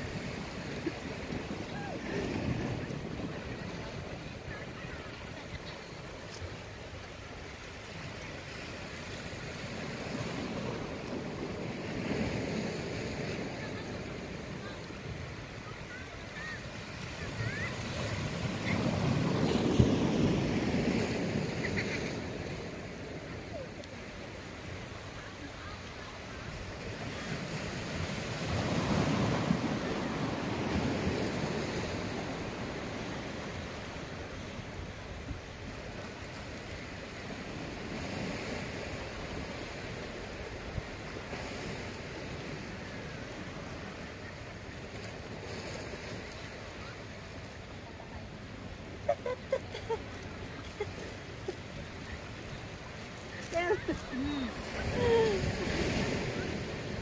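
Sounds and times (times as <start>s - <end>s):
wind on microphone: 0.0s - 6.5s
sea waves washing against rocks: 0.0s - 57.0s.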